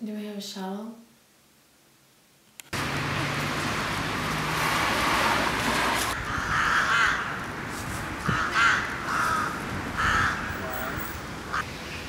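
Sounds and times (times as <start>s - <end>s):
crows cawing: 6.1s - 7.5s, 8.2s - 11.7s.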